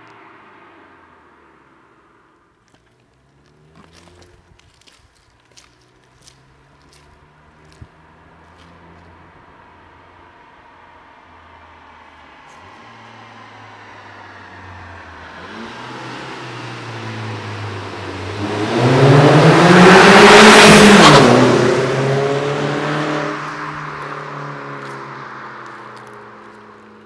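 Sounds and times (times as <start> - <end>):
car engine accelerating past: 5.6 - 27.0.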